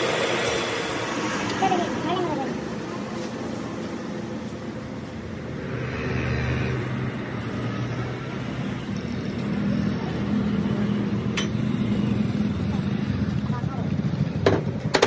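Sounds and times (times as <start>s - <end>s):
road noise: 0.0s - 15.0s
motorcycle engine running: 8.9s - 15.0s.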